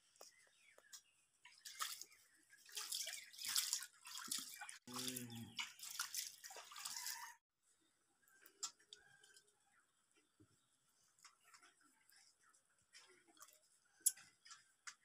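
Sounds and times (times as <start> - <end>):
wet squelching and splashing: 1.5 - 7.4.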